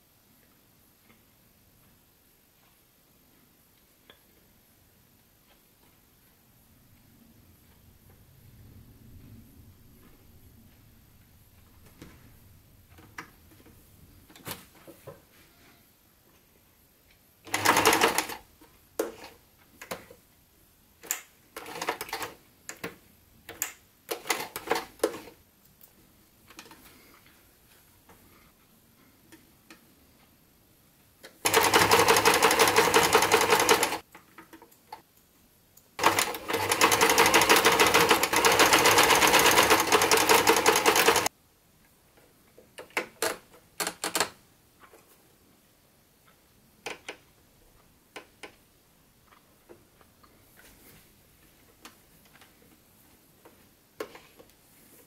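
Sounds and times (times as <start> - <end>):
sewing machine stitching: 17.5 - 18.4, 21.6 - 22.4, 24.1 - 25.3, 31.4 - 34.0, 36.0 - 41.3.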